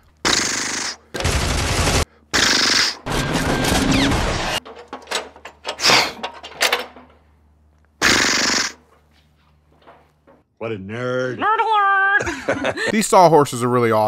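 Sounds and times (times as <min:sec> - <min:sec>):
machine-gun fire: 0:00.3 - 0:04.6.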